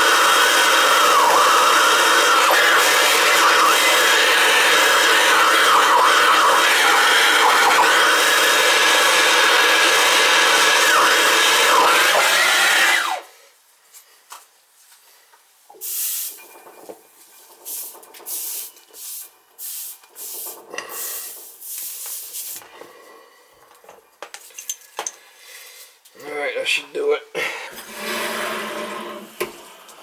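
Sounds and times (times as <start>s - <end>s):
torch flame hissing: 15.8s - 16.4s, 17.6s - 22.6s
tools rustling and clattering: 23.8s - 25.2s.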